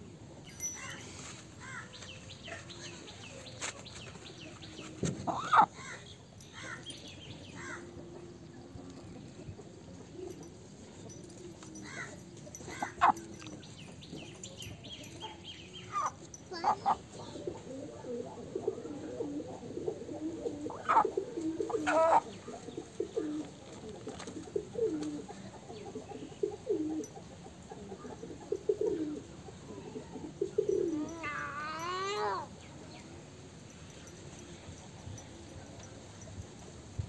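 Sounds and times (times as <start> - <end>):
chicken calling: 5.2 - 6.0, 20.7 - 22.3.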